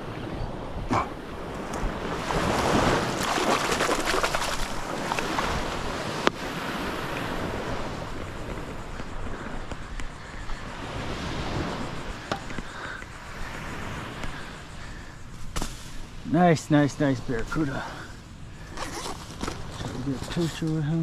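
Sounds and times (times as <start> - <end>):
wind on microphone: 0.0 - 14.9
small surf washing on sand: 1.2 - 21.0.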